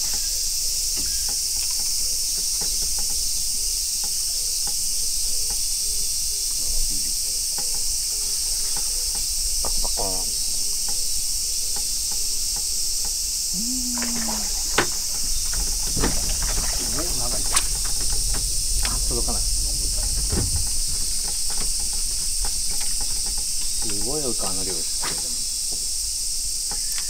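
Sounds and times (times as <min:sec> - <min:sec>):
cicadas chorus: 0:00.0 - 0:27.0
faint ticks: 0:00.0 - 0:27.0.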